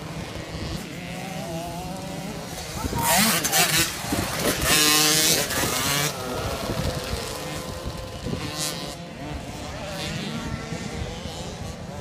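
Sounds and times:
distant motocross bikes: 0.0 - 12.0
motocross bike revving: 0.0 - 12.0.

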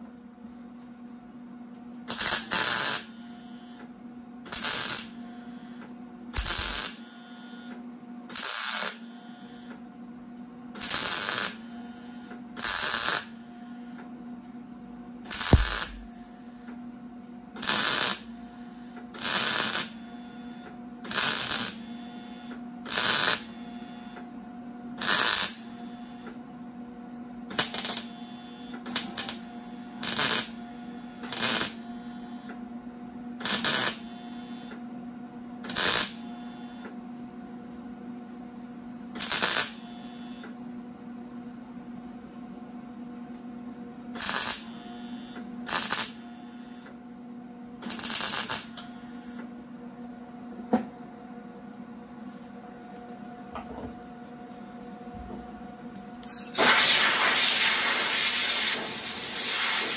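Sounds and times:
steady welder hum: 0.0 - 10.0, 10.6 - 14.3, 15.2 - 41.0, 43.7 - 59.9
welder arc bursts: 2.1 - 3.2, 4.5 - 5.2, 6.4 - 7.1, 8.3 - 9.0, 10.8 - 11.6, 12.6 - 13.4, 15.3 - 16.3, 17.6 - 18.3, 19.2 - 20.0, 21.1 - 21.8, 22.9 - 23.5, 25.0 - 25.7, 27.5 - 28.1, 29.0 - 29.4, 30.0 - 30.6, 31.2 - 31.8, 33.4 - 34.1, 35.6 - 36.2, 39.2 - 39.8, 44.2 - 44.7, 45.7 - 46.2, 47.8 - 48.8, 56.2 - 59.9.

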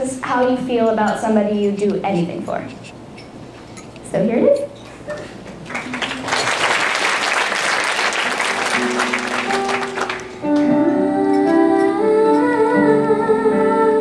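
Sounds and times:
audience applauding: 5.6 - 10.4.

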